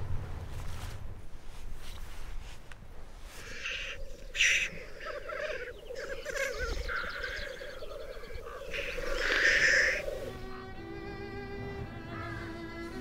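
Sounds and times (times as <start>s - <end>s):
high chirping calls: 3.4s - 10.5s.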